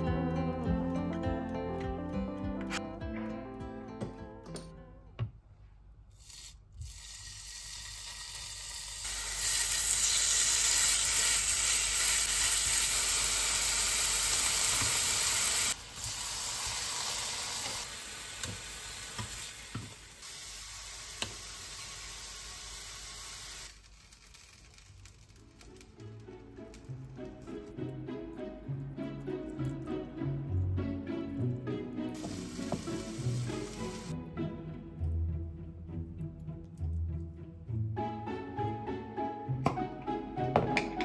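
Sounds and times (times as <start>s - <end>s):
patties sizzling in frying pan: 6.2s - 23.7s, 32.2s - 34.1s.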